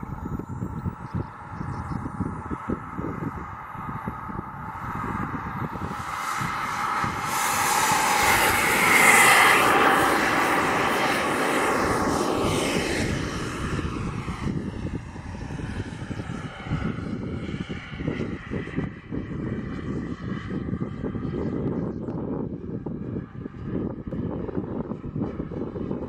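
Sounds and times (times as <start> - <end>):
jet turbine whine and hiss: 0.0 - 20.5
wind buffeting microphone: 0.0 - 26.0.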